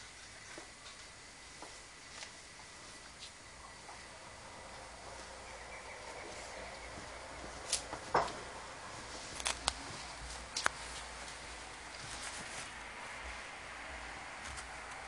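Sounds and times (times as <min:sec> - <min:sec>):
faint steady hiss: 0:00.0 - 0:15.0
fabric rustling and scuffing: 0:06.1 - 0:14.8.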